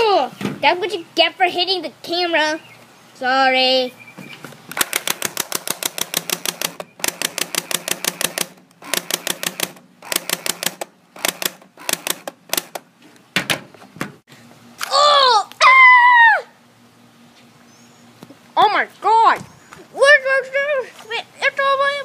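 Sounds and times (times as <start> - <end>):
airsoft rifle automatic fire: 4.8 - 12.7.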